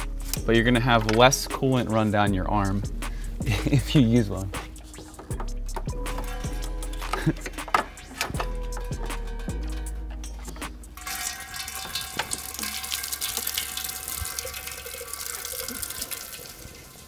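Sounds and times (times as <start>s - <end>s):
coolant pouring and splashing: 11.0s - 17.0s.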